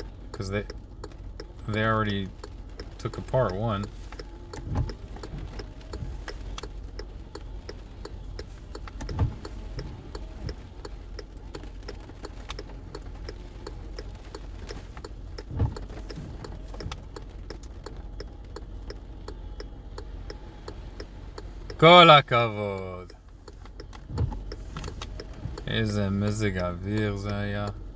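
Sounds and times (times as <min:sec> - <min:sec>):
car idling hum: 0:00.0 - 0:27.9
rain: 0:00.0 - 0:27.9
turn signal ticking: 0:00.0 - 0:27.9.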